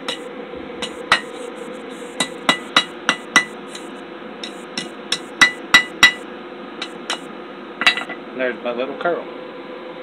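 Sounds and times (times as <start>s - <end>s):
hammer striking metal on anvil: 0.0s - 6.2s, 6.8s - 8.2s
steady low hum: 0.0s - 10.0s.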